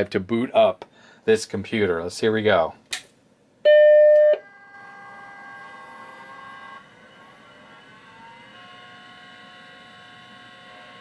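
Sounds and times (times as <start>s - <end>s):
hard drive whine spinning up: 4.4s - 11.0s.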